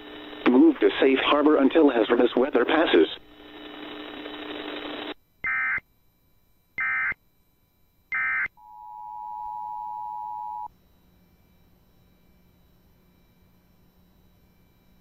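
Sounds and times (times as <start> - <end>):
radio hiss: 0.0 - 5.2.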